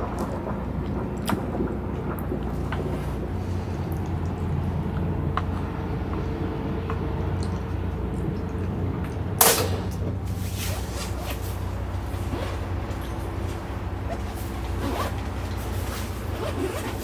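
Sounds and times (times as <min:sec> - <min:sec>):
strong wind rumbling: 0:00.0 - 0:17.0
loud sharp clack: 0:09.4 - 0:10.0.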